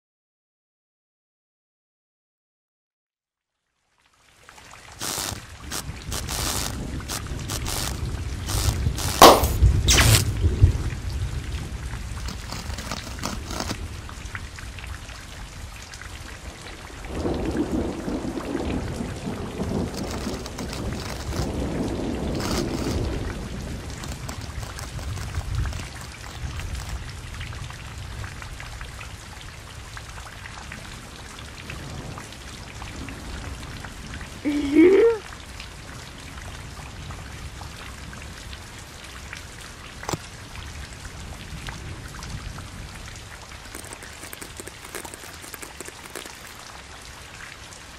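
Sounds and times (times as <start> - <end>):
rain-like hiss: 3.6 - 47.9
sharp crackles: 5.0 - 10.4, 12.0 - 13.9, 19.5 - 27.3, 43.6 - 46.9.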